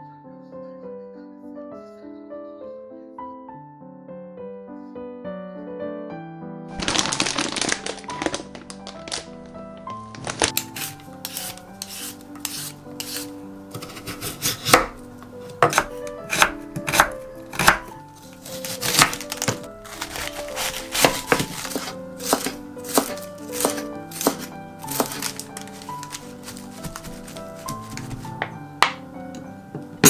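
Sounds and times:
light background music: 0.0s - 30.0s
peeler scraping a carrot: 10.6s - 28.4s
knife chopping on wooden board: 10.7s - 28.6s.

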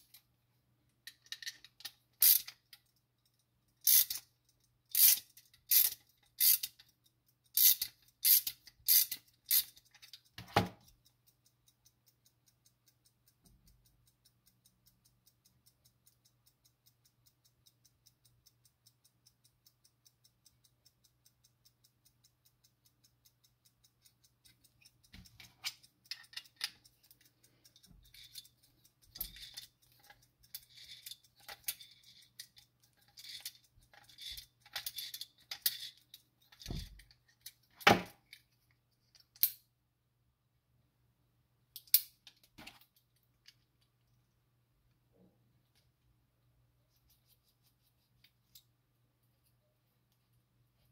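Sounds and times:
clock movement ticking: 0.0s - 39.6s
metal clicks and knocks: 1.0s - 2.9s, 7.8s - 11.0s, 24.8s - 39.6s.

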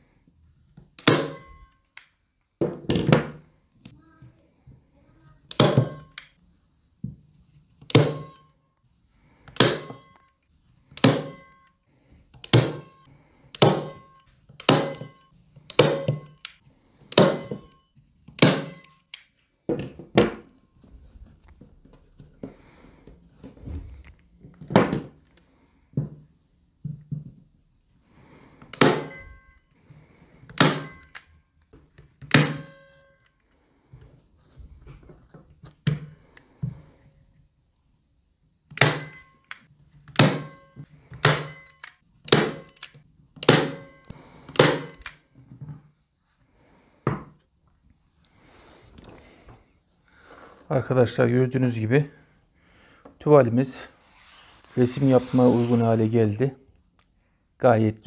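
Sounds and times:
staple gun snapping: 41.2s - 43.8s, 44.5s - 45.2s.

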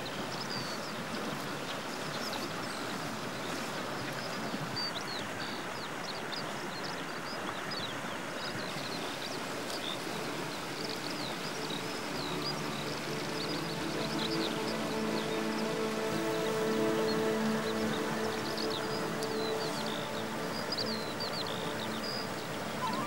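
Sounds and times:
birds chirping: 0.0s - 23.0s
steady rushing background noise: 9.6s - 23.0s
music: 10.5s - 23.0s.

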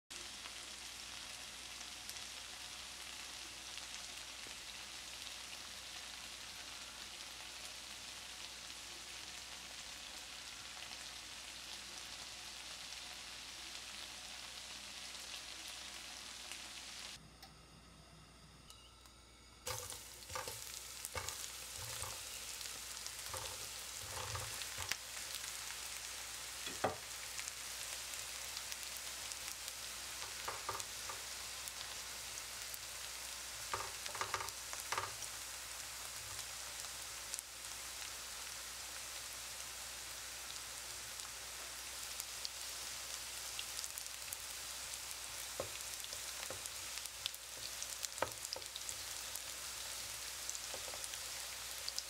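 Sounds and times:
food sizzling in oil: 0.1s - 17.2s, 19.7s - 52.0s
spatula knocking and scraping: 19.7s - 22.2s, 23.2s - 25.0s.

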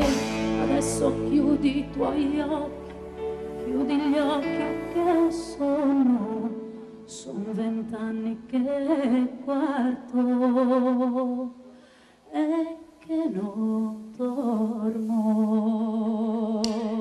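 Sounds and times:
live band playing: 0.0s - 2.2s
woman singing with vibrato: 0.0s - 11.7s, 12.3s - 17.0s.

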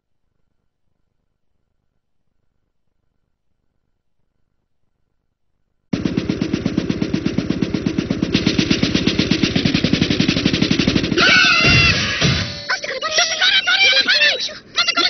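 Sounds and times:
fast rattle of sharp beats: 5.9s - 14.1s.

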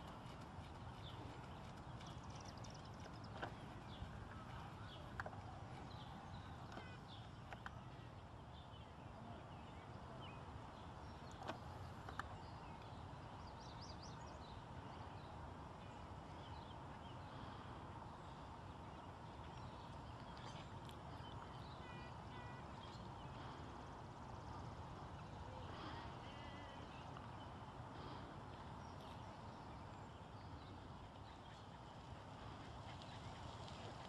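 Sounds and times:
faint high bird chirps: 21.3s - 23.6s.

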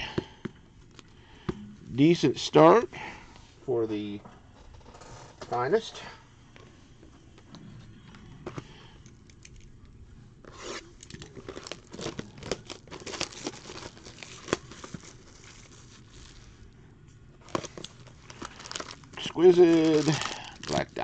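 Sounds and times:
plastic wrap tearing and crinkling: 10.5s - 16.6s, 17.4s - 21.0s
handling of cardboard box: 11.4s - 16.5s.

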